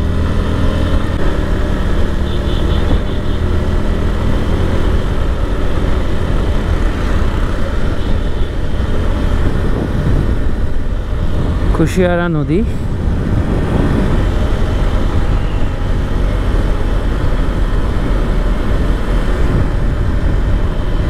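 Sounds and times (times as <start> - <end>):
wind rush on microphone: 2.7 - 21.0.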